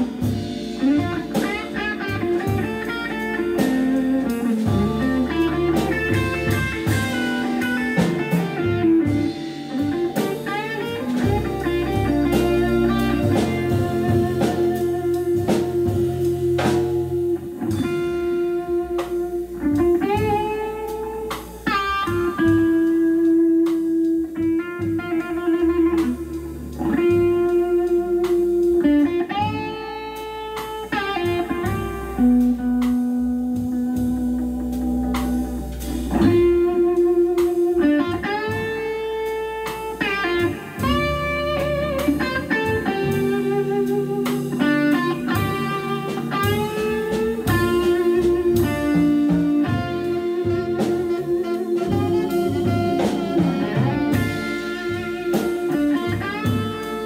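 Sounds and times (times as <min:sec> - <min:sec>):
drum kit: 0:00.0 - 0:57.0
electric guitar: 0:00.0 - 0:57.0
organ: 0:00.0 - 0:57.0
saxophone: 0:47.3 - 0:57.0.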